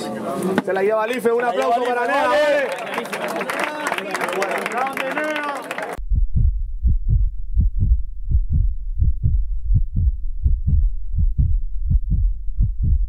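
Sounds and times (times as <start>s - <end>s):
deep electronic bass thumps: 6.0s - 13.0s.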